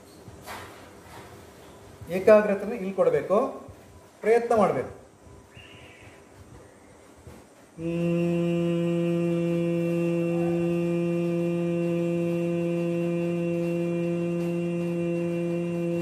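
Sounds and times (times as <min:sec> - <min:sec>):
man humming: 0:07.8 - 0:16.0.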